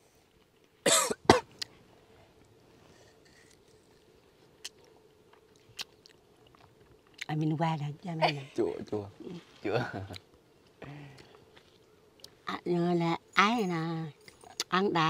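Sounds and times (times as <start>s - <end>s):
person coughing: 0.8s - 1.5s.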